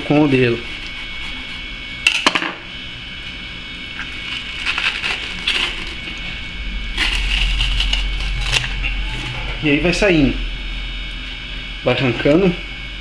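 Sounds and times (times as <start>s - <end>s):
blade scraping bones and cloth: 4.2s - 6.1s.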